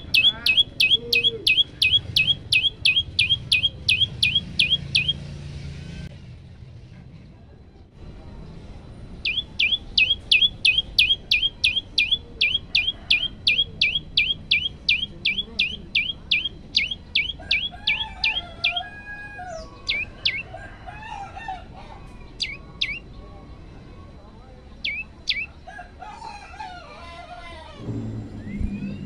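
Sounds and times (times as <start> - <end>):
bird singing sharp whistles: 0.2 - 5.2, 9.3 - 17.3
faint low chirping: 27.8 - 29.0.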